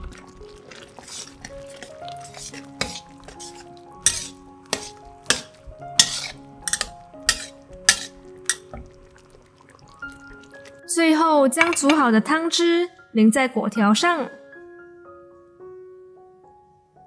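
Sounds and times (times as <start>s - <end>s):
soft background music: 0.0s - 17.0s
metal spatula scraping a wok: 0.9s - 8.6s.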